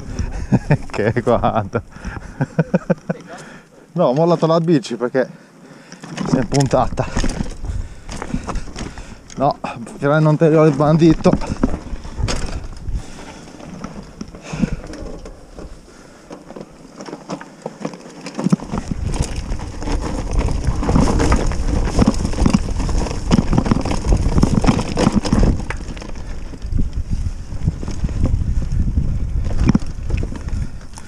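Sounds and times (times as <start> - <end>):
wind on microphone: 0.0 - 2.4, 6.5 - 9.4, 10.9 - 13.4, 18.7 - 31.0
tyres over rough ground: 0.0 - 31.0
bike rattling and clattering: 5.9 - 31.0.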